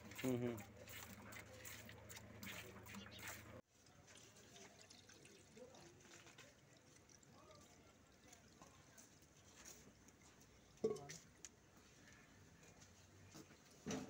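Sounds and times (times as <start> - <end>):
milk trickling through strainer: 0.0 - 11.1.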